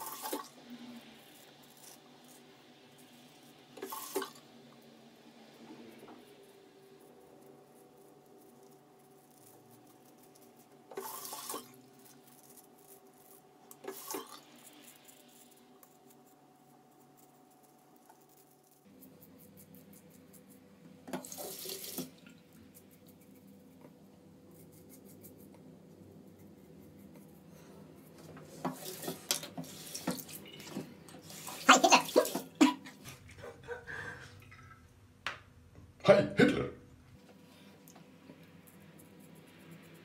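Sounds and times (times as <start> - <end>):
razor scratching stubble: 24.5 - 25.6
tap water splashing: 28.6 - 30.9.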